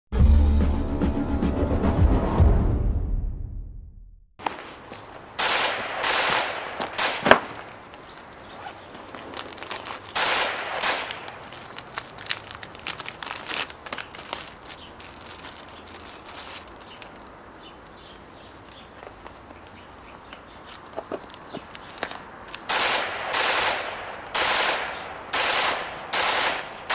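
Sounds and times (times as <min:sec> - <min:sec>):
music: 0:00.1 - 0:04.0
plastic crinkles and clicks: 0:06.8 - 0:18.0, 0:20.2 - 0:22.7
plastic packaging ripping: 0:08.6 - 0:17.3.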